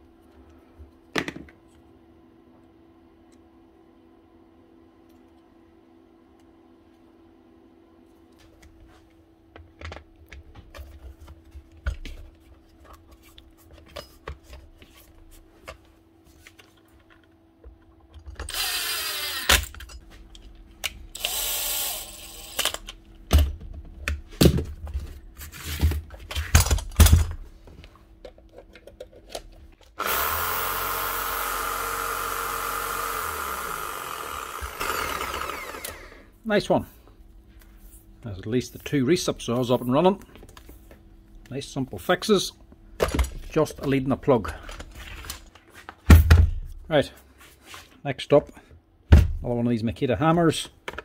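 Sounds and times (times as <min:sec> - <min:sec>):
reciprocating saw motor running: 0:18.5 - 0:19.6, 0:21.2 - 0:22.6, 0:30.0 - 0:36.3.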